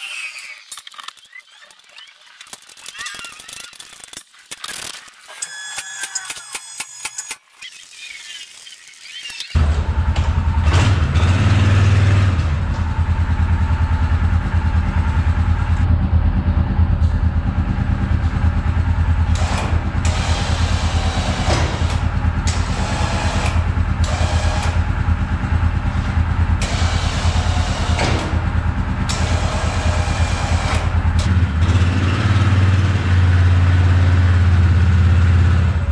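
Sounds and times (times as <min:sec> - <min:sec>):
atv engine idling: 0:12.5 - 0:20.1, 0:24.7 - 0:26.6.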